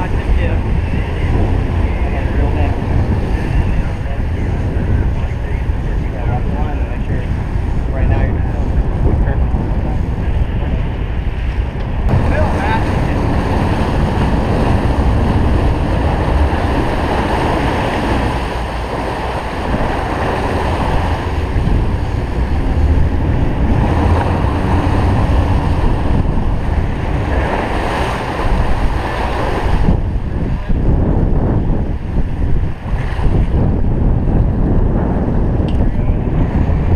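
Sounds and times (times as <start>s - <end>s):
boat engine running: 0.0s - 36.9s
rush of churned water: 0.0s - 36.9s
wind buffeting microphone: 0.0s - 36.9s.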